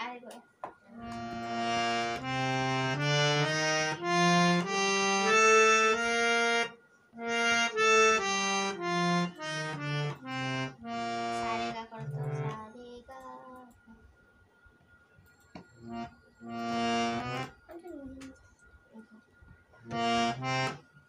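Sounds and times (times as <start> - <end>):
harmonium melody: 0.9 - 12.7, 15.5 - 17.7, 19.8 - 21.0.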